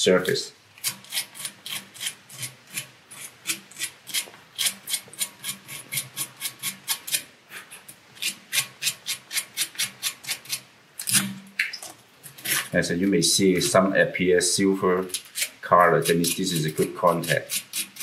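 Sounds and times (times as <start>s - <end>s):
sandpaper rubbing on metal: 15.1s - 18.0s.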